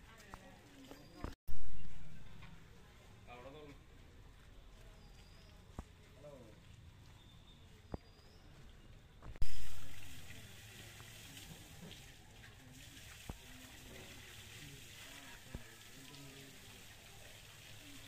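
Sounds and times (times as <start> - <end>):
hose water spraying and splashing: 9.4 - 18.0.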